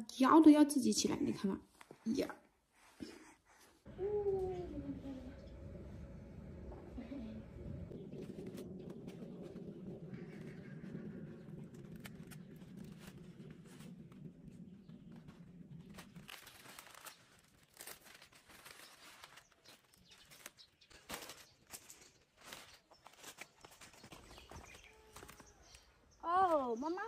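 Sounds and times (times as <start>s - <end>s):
faint low hum: 3.9s - 18.6s
leaves rustling and crinkling: 7.0s - 27.0s
vegetable stalks snapping: 16.0s - 25.9s.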